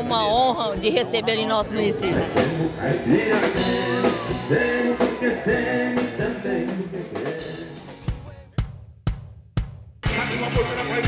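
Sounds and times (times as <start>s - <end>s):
music with drums and bass: 0.0s - 11.0s.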